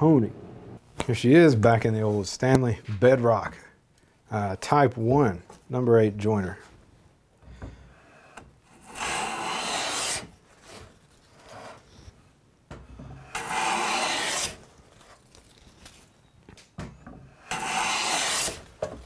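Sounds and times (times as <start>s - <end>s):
hand plane hissing on wood: 8.8s - 10.8s, 13.2s - 14.6s, 17.4s - 18.6s.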